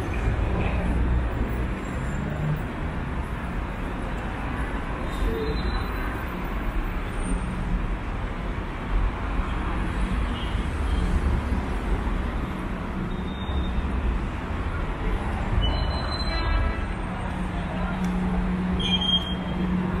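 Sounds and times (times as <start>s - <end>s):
road traffic: 0.0s - 20.0s.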